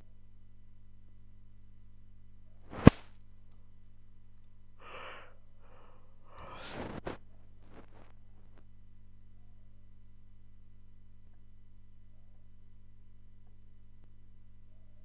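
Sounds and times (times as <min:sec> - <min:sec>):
low steady hum: 0:00.0 - 0:15.0
breathy sighs: 0:04.8 - 0:07.9.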